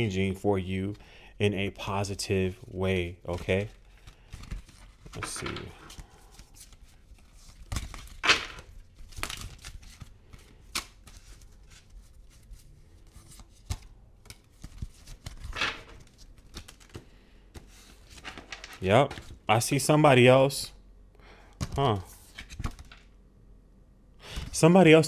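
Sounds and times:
cards rustling and flicking: 0:03.2 - 0:19.4, 0:21.6 - 0:23.1.

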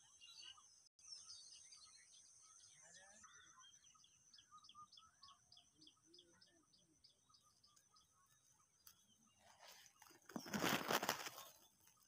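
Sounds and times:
scattered bird chirps: 0:00.0 - 0:12.0
rustle: 0:09.4 - 0:12.0.

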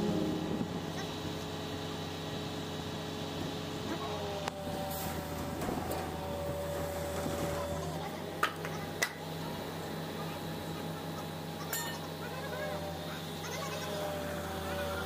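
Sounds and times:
low engine hum: 0:00.0 - 0:10.9
faint voices: 0:07.3 - 0:15.0.

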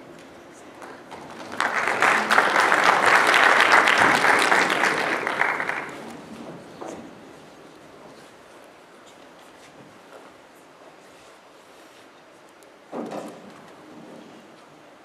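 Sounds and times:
audience applauding: 0:00.8 - 0:06.3.

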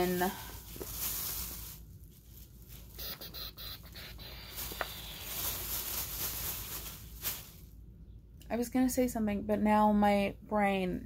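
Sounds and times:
plastic bag crinkling: 0:00.0 - 0:07.8.

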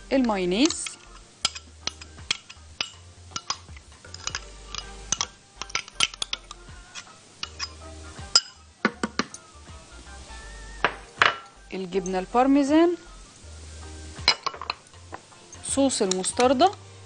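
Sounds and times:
spoon clinking against cup: 0:00.6 - 0:09.5, 0:14.2 - 0:16.8.

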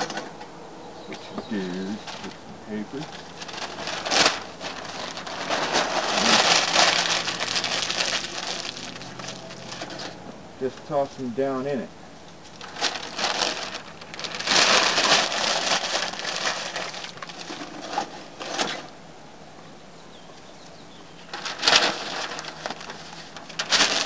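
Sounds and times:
paper crumpling and rustling: 0:01.4 - 0:02.4, 0:03.0 - 0:10.2, 0:12.5 - 0:18.9, 0:21.2 - 0:24.0
charcoal clattering into metal chimney: 0:03.0 - 0:10.2, 0:21.3 - 0:24.0.

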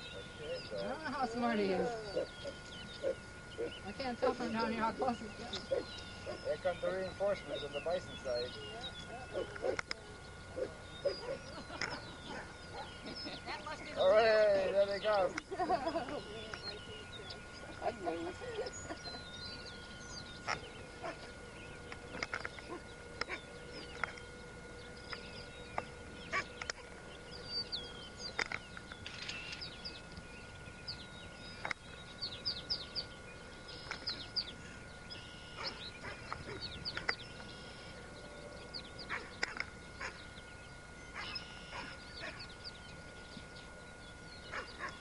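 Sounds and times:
faint steady whine: 0:00.0 - 0:45.0
dogs yipping and barking: 0:01.8 - 0:03.9, 0:05.6 - 0:06.6, 0:09.1 - 0:13.4, 0:20.4 - 0:21.4, 0:22.1 - 0:24.2, 0:26.2 - 0:27.1, 0:35.5 - 0:37.1, 0:39.0 - 0:40.3, 0:41.1 - 0:42.5, 0:44.5 - 0:45.0.

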